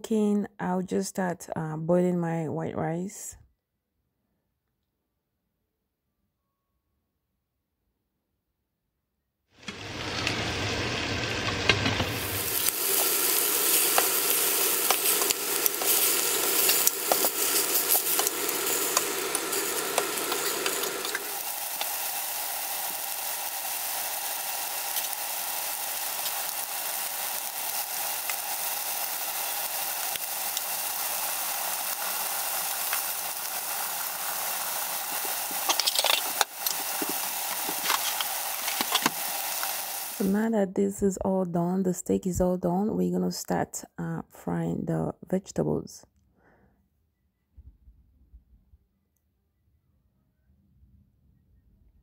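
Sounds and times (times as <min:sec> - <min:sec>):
meat sizzling in a pan: 0:09.6 - 0:40.4.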